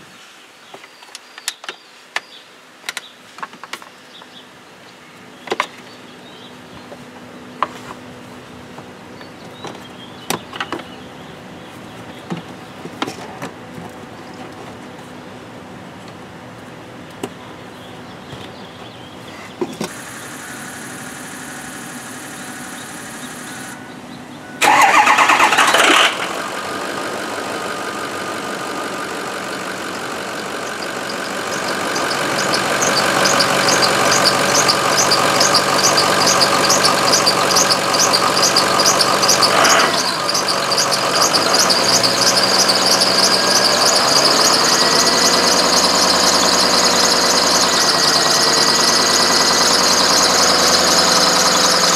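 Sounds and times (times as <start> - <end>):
fan belt chirping: 5.8 - 51.9
diesel engine idling: 19.9 - 51.9
starter cranking engine: 24.6 - 51.9.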